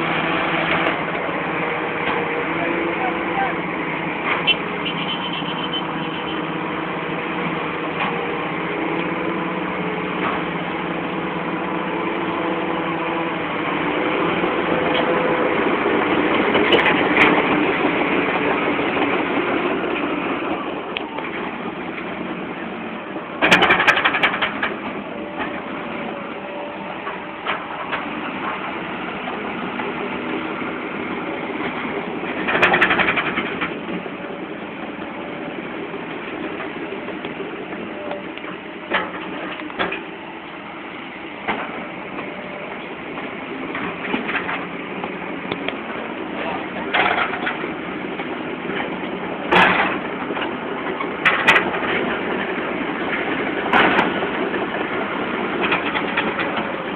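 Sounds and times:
excavator diesel engine under load: 0.0 - 56.9
loud clattering bursts: 23.4 - 25.5, 31.7 - 33.8.

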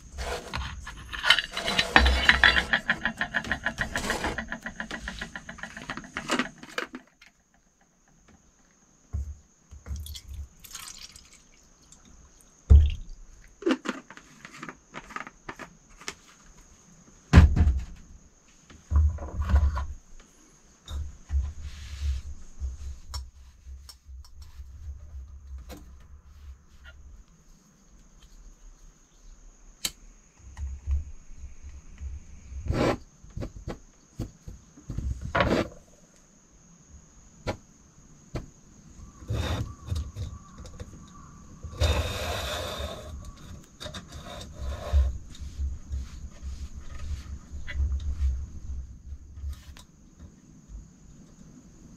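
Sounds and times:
canister stove clicks and scrapes: 0.1 - 7.2.

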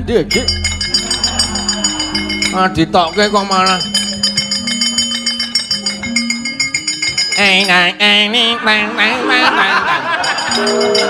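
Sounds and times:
gamelan metallophones ringing: 0.0 - 8.3, 9.5 - 11.0
person singing with wavering pitch: 0.0 - 9.7
jingling percussion: 0.2 - 8.2, 10.1 - 11.0.

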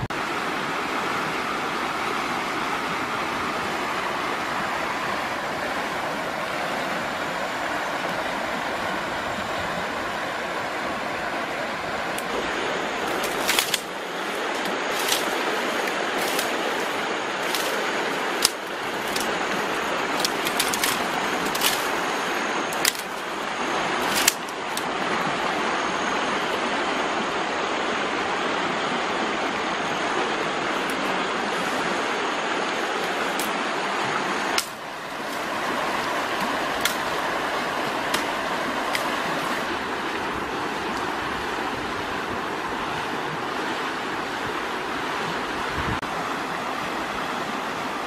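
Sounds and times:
stream running over rocks: 0.0 - 48.0.

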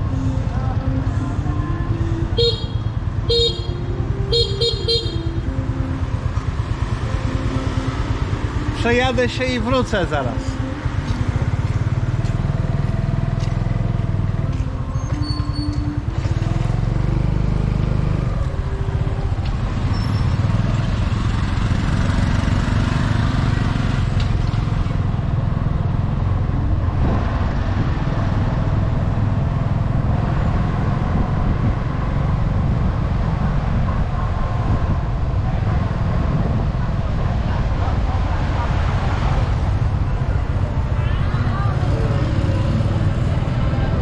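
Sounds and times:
passing traffic: 0.0 - 44.0
scooter engine running: 1.8 - 9.2
wind rumble on microphone: 24.0 - 44.0.

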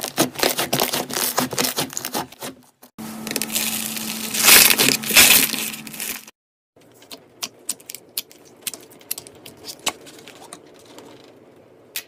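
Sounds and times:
slime crackling crunch: 3.2 - 6.3.

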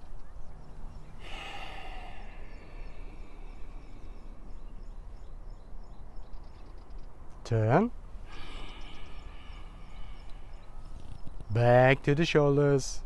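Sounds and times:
faint bird chirps: 0.0 - 11.9
low outdoor rush: 0.0 - 13.0.

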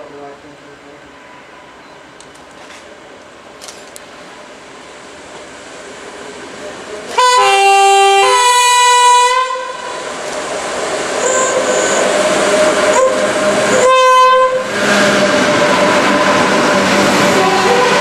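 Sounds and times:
train wheel and rail noise: 0.0 - 18.0
locomotive horn blast: 7.1 - 10.0, 11.2 - 12.1, 12.8 - 15.9, 17.2 - 18.0.

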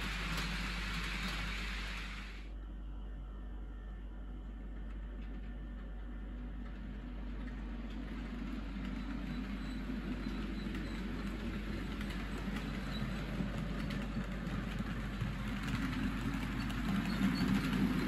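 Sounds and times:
faint wheel clicks on rails: 0.0 - 2.2
model train rumbling along track: 0.0 - 2.5, 4.1 - 18.0.

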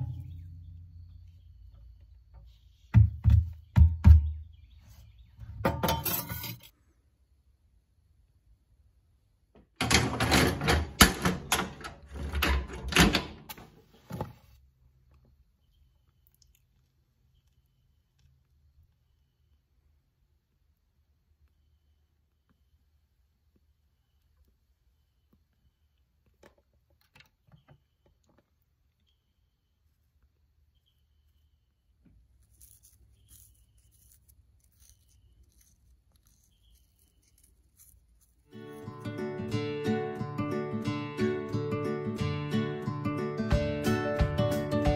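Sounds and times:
stove door metal clanking: 9.8 - 13.6.

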